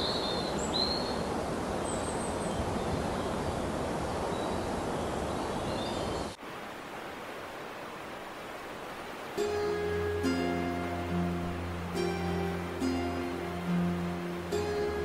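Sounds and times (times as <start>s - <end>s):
faint bird chirps: 0.0s - 3.7s
low wind rumble: 0.0s - 7.9s
background hiss: 0.0s - 15.0s.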